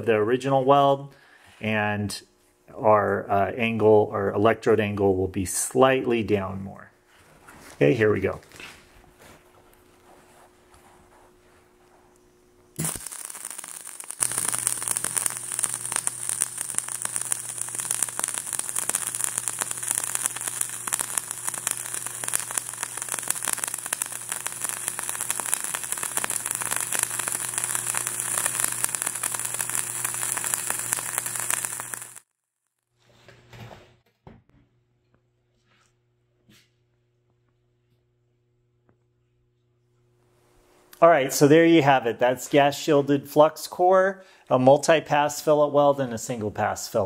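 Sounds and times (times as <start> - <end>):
welding arc crackling: 12.8 - 33.0.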